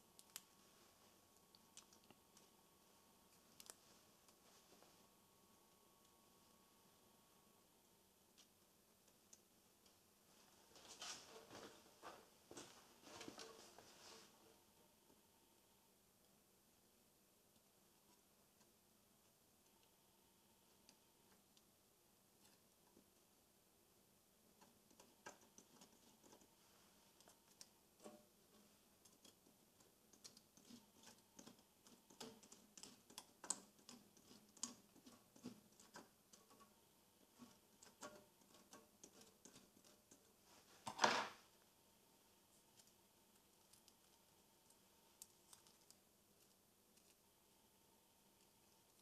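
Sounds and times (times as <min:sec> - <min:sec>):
small plastic clicks and ticks: 0:00.1 - 0:00.5, 0:24.5 - 0:26.5, 0:27.1 - 0:40.3.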